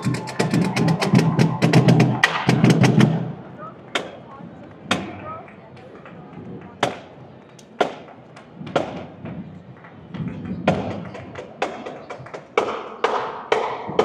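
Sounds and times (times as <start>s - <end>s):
marching band drums beating: 0.0s - 3.4s.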